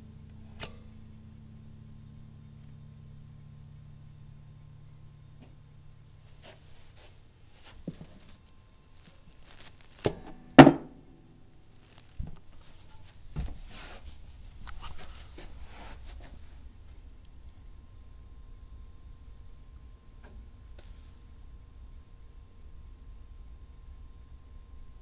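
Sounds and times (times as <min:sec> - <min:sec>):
rustling in guitar case: 0:06.2 - 0:10.3, 0:11.5 - 0:16.7
loud knock: 0:10.6 - 0:11.0.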